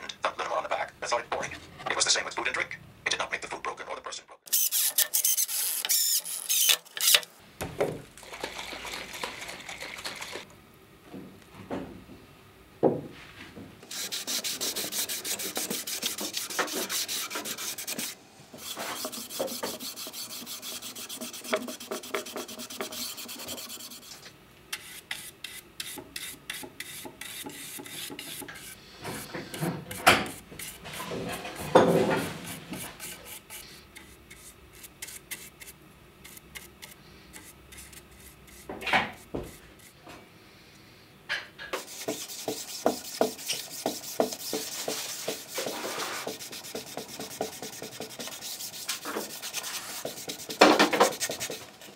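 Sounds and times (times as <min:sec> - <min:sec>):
brush in corners: 0:41.8 - 0:51.9
cloth pad rubbing wood: 0:41.9 - 0:51.6.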